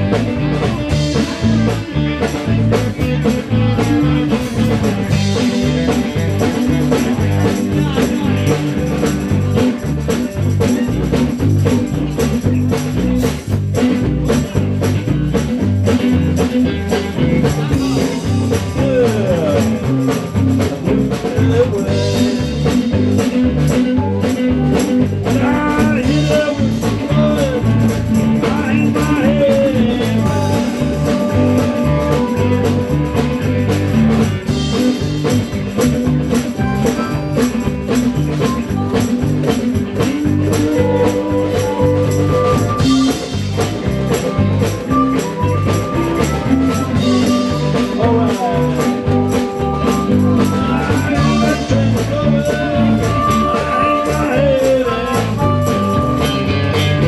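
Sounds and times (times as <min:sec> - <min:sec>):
blues-rock band playing: 0:00.0 - 0:57.0
electric guitar lead: 0:00.0 - 0:57.0.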